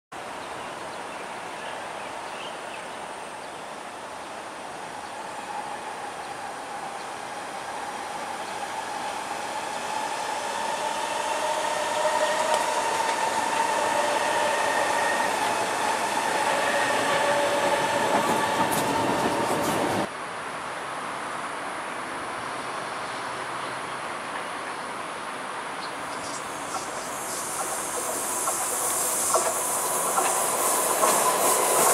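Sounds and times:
train steady whine: 0:03.0 - 0:20.1, 0:26.0 - 0:31.9
train rolling wheel noise: 0:04.1 - 0:20.1, 0:26.0 - 0:31.9.

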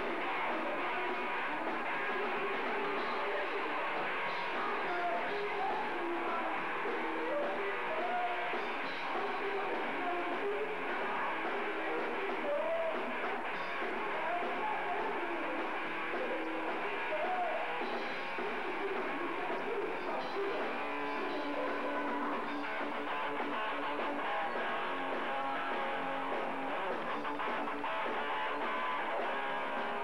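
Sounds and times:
live rock band playing: 0:00.0 - 0:30.0.

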